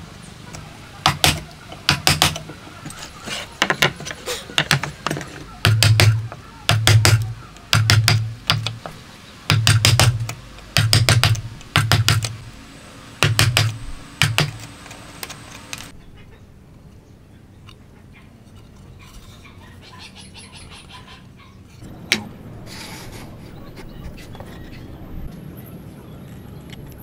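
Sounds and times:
mallet striking chisel handle: 5.6 - 8.8, 9.5 - 12.3.

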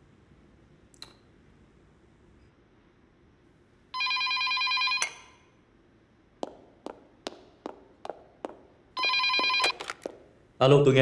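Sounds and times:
telephone ringing: 4.0 - 5.4, 9.0 - 10.1
footsteps on wooden floor: 6.4 - 10.2.

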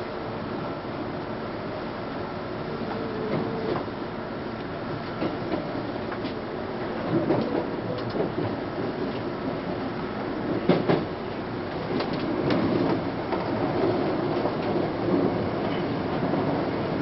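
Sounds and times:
train rumble: 0.0 - 17.0
sharp train clicks: 4.6 - 9.3, 10.5 - 16.0.

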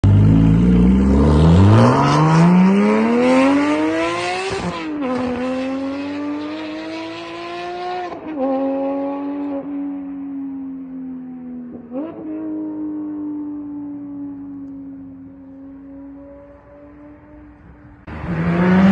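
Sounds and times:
sports car accelerating hard: 0.0 - 9.7, 11.7 - 13.7, 15.5 - 18.9.

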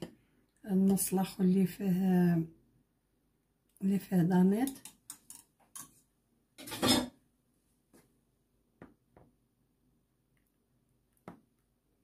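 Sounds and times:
kitchenware clicks and taps: 4.6 - 5.9.

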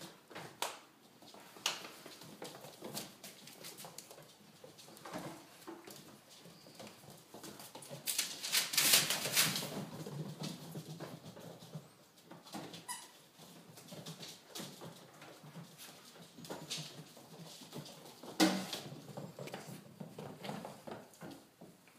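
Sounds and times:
dogs scuffling in play: 0.0 - 21.9.

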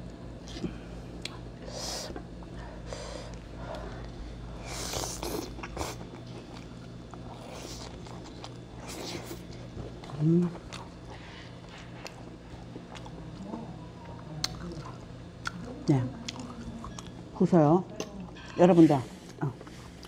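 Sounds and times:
steady low hum: 0.0 - 20.0
person chewing: 3.2 - 17.3.

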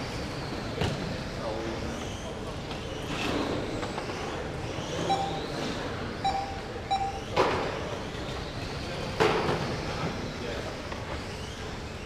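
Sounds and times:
short electronic beeps: 5.0 - 5.5, 6.2 - 7.3.

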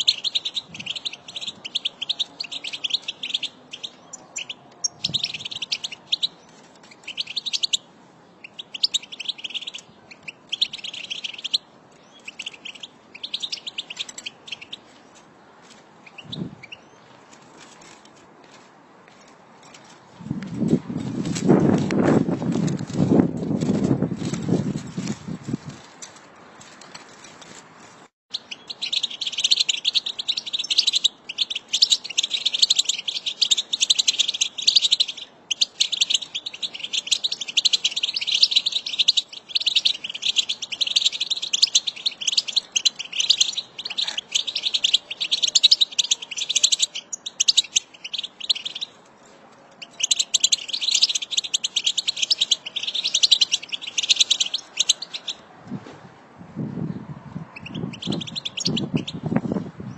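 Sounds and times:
flock of finches twittering: 28.4 - 48.9, 49.8 - 55.4, 57.6 - 59.2.

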